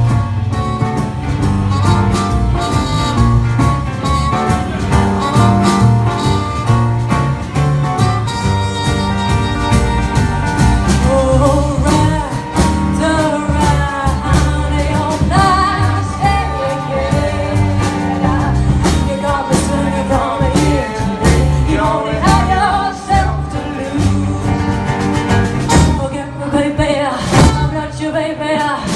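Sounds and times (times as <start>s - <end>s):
acoustic guitars strummed: 0.0s - 26.3s
woman singing: 11.0s - 24.8s, 25.7s - 28.9s
drum hits: 24.5s - 26.2s.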